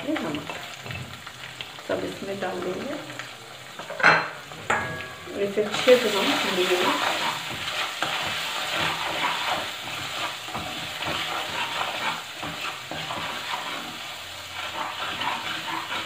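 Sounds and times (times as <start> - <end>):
spices sizzling in hot oil: 0.0 - 16.0
spatula scraping a pan: 3.8 - 16.0.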